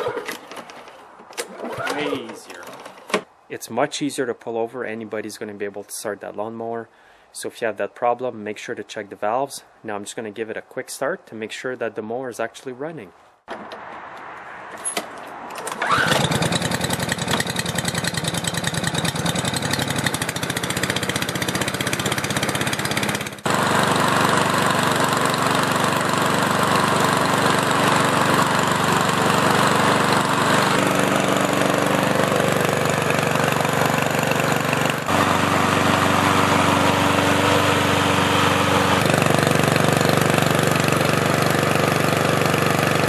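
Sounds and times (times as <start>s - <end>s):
lawn mower engine starting and running: 0.0s - 3.4s, 13.5s - 43.0s.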